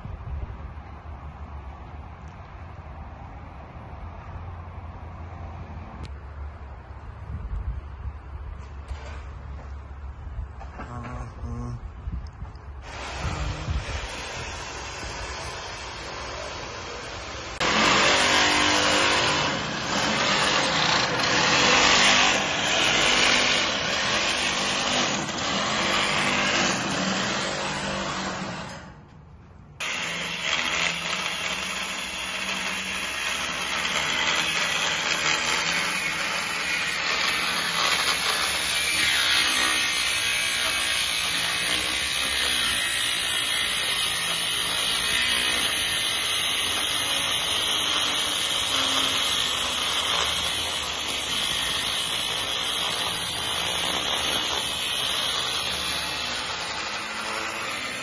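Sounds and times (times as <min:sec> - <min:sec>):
loud harsh machine noise: 0:12.8 - 0:29.0, 0:29.8 - 0:58.0
angle grinder grinding steel: 0:17.2 - 0:28.9, 0:29.8 - 0:58.0.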